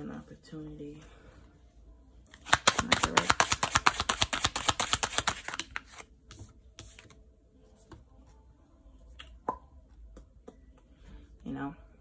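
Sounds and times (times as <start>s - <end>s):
cards clicking and slapping: 2.3s - 6.0s.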